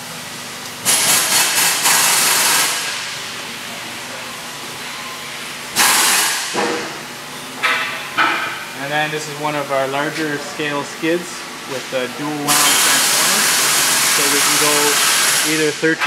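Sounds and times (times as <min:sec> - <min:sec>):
loud hissing bursts: 0:00.8 - 0:03.0, 0:05.8 - 0:06.5, 0:12.5 - 0:15.8.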